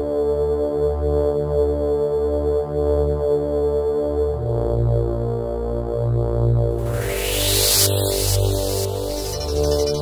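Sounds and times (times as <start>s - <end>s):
held synth tone: 6.8s - 10.0s
synth bass line: 6.8s - 10.0s.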